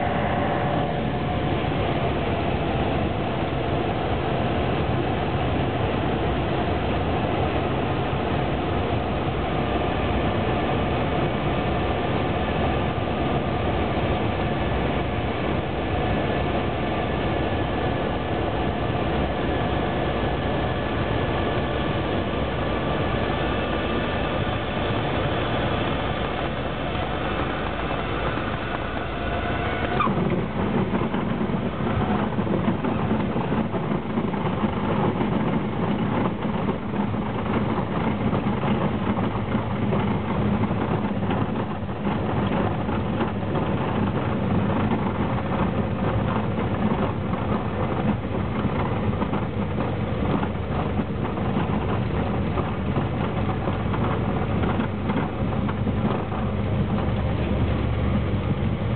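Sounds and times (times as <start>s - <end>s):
airflow noise: 0.0s - 34.4s
airplane engine droning: 0.0s - 58.9s.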